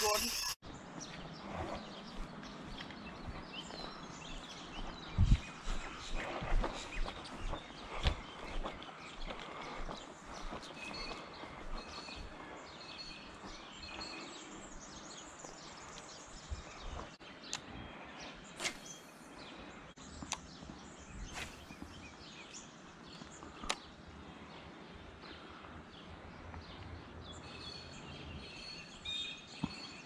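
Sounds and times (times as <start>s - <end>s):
birds chirping: 0.0s - 30.0s
brief swishes: 18.6s - 19.1s
sharp clicks: 23.6s - 23.8s.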